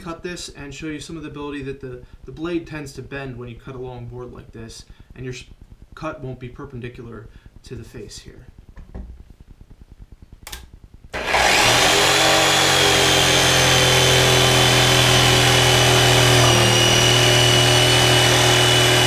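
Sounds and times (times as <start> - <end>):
jigsaw cutting wood: 11.2 - 19.0.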